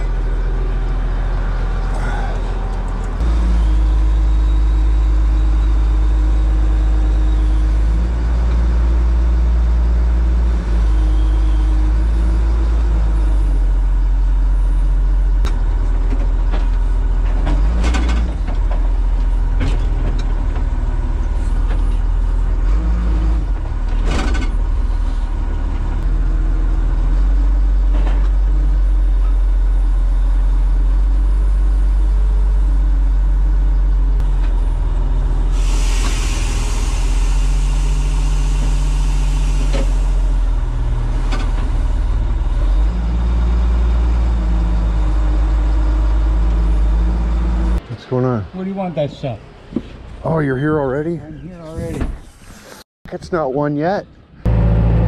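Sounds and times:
diesel engine running: 0.0s - 51.3s, 54.3s - 55.0s.

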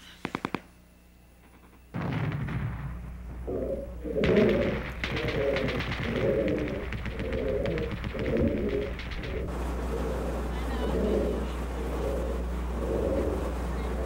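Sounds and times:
low hum: 0.0s - 14.0s
steady hiss: 0.0s - 14.0s
low cooing calls: 3.4s - 14.0s.

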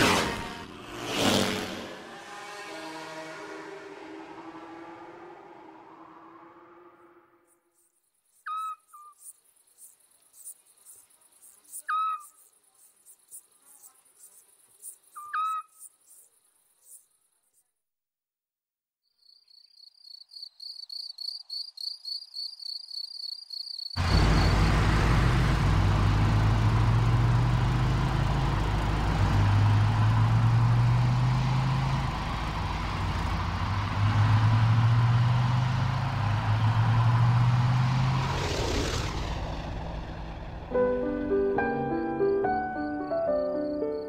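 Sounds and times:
whoosh passing: 0.0s - 7.4s, 36.6s - 41.0s
crickets chirping: 7.5s - 17.7s, 19.0s - 25.0s, 42.3s - 44.0s
car engine running: 24.0s - 41.7s.

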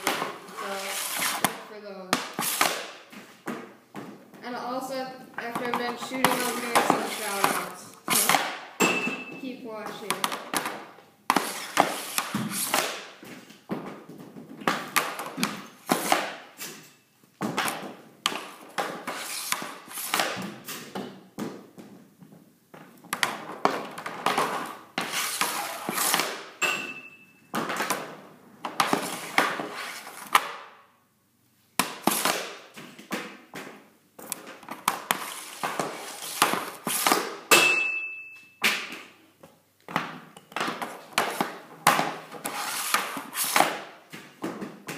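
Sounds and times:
hockey stick slapping pucks: 0.0s - 4.2s, 5.4s - 9.2s, 9.8s - 16.8s, 17.4s - 21.9s, 23.1s - 30.7s, 31.8s - 37.8s, 38.6s - 39.2s, 39.9s - 44.9s
pucks clattering on concrete: 1.3s - 4.2s, 5.4s - 30.7s, 31.8s - 44.9s
puck pinging off metal frame: 5.4s - 13.1s, 23.1s - 29.7s, 34.4s - 39.1s.

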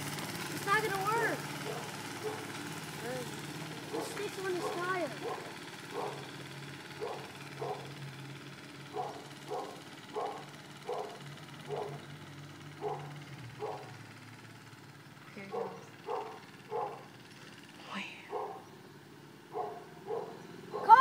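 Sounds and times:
dog barking: 1.6s - 2.5s, 3.9s - 6.3s, 7.0s - 7.9s, 8.9s - 12.0s, 12.8s - 14.0s, 15.5s - 17.1s, 18.3s - 18.6s, 19.5s - 21.0s.

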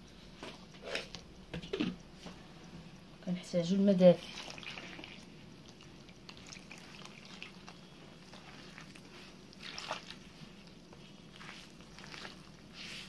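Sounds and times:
hand mixing wet dough: 3.5s - 13.0s.

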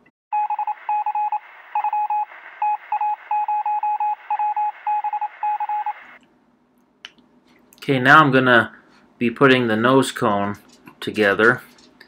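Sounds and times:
short electronic beeps: 0.4s - 6.0s.

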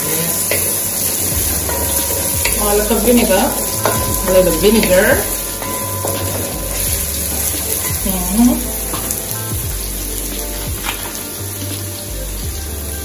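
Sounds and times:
onions sizzling in a pot: 0.0s - 13.0s
wooden spoon stirring: 0.2s - 9.4s.

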